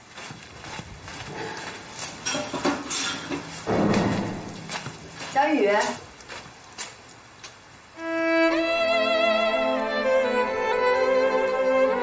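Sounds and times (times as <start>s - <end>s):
dishes clinking: 2.2s - 4.6s.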